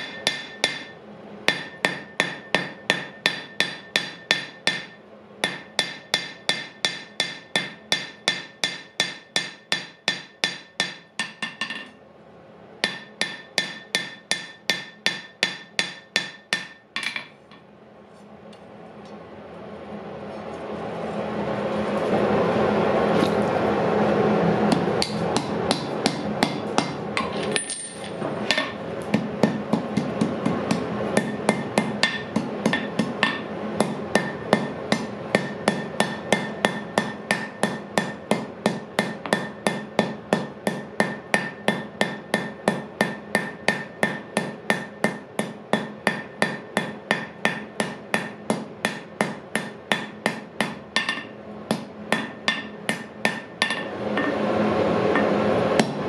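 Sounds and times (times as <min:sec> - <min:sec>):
hammer striking iron on anvil: 0:00.0 - 0:12.0, 0:12.8 - 0:17.3, 0:24.7 - 0:54.4, 0:55.1 - 0:56.0.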